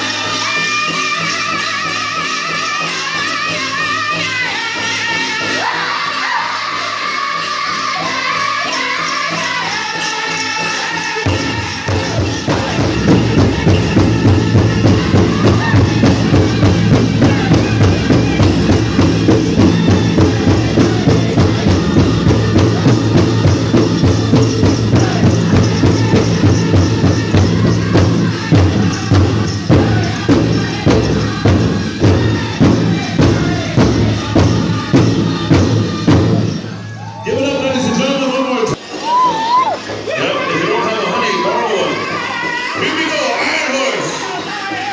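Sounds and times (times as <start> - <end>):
drum group singing: 0.0 - 38.0, 38.6 - 44.9
jingling leg bells: 0.0 - 44.9
steady beat on large drum: 11.3 - 36.5.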